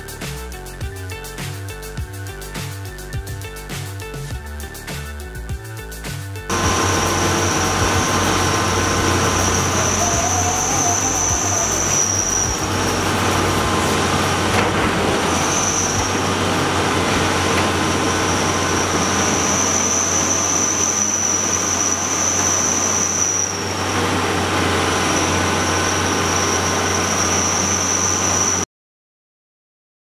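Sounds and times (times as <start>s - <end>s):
high-pitched whine: 0.0s - 28.7s
excavator diesel engine: 6.4s - 28.6s.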